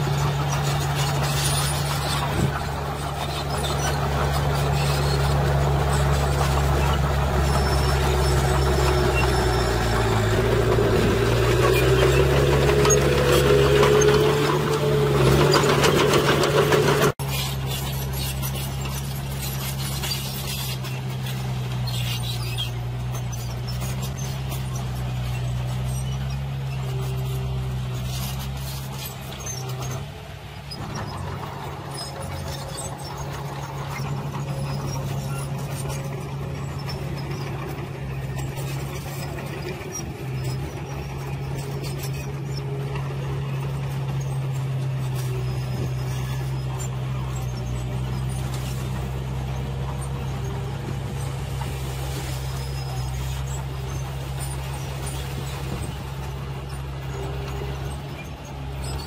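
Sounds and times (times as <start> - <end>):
soil being dumped: 0.0 - 59.0
truck engine at raised idle: 0.0 - 59.0.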